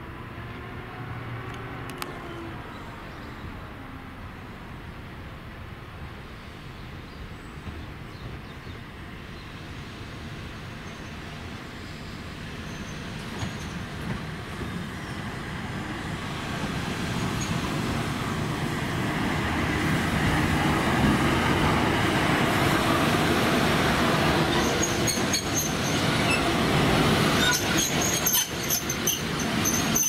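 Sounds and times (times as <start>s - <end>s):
electric locomotive passing: 8.5s - 30.0s
wheels squealing on rails: 10.8s - 15.3s, 17.2s - 17.8s, 24.2s - 30.0s.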